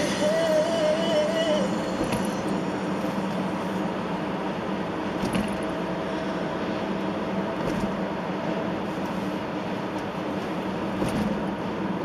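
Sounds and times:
car road and engine noise: 0:00.0 - 0:12.0.

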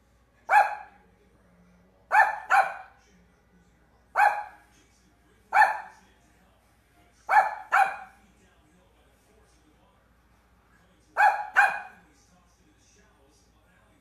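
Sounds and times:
small dog yapping: 0:11.2 - 0:11.9.

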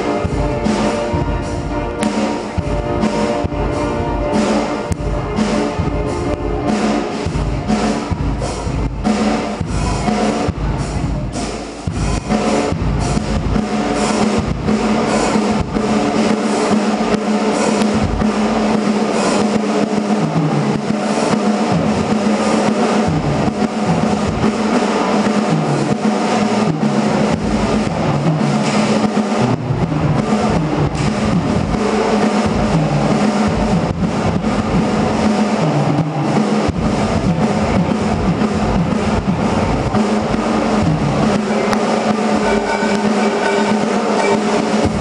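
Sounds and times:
drum kit playing: 0:00.0 - 0:45.0
low held note: 0:41.7 - 0:45.0.

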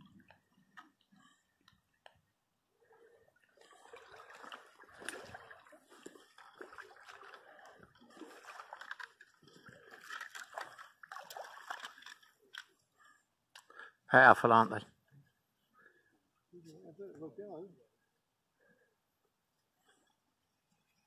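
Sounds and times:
water splashing and sloshing: 0:00.0 - 0:13.8.

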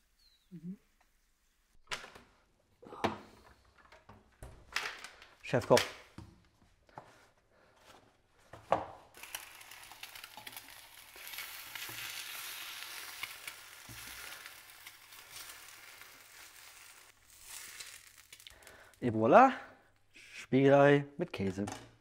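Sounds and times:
egg sizzling in a frying pan: 0:09.1 - 0:19.0.

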